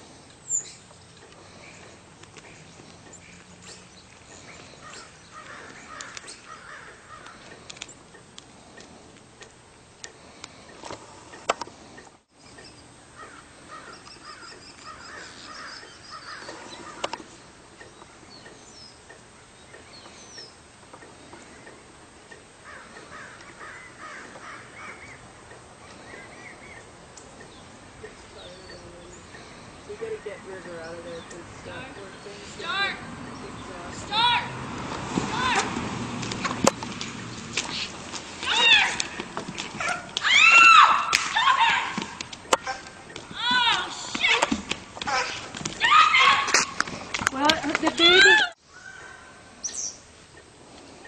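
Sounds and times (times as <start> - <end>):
birds calling: 0.0 - 51.0
high bird chirps: 0.4 - 1.1.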